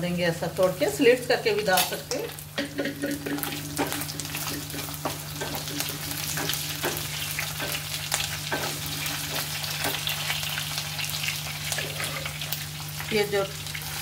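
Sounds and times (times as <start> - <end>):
meat sizzling in hot oil: 0.6 - 14.0
spatula scraping and tapping pan: 2.6 - 10.2.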